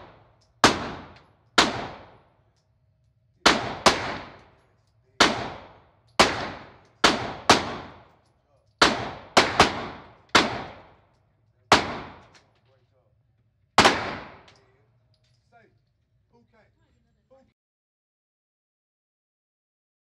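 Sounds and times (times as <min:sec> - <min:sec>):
gunshots in a room: 0:00.0 - 0:12.6, 0:13.6 - 0:15.0.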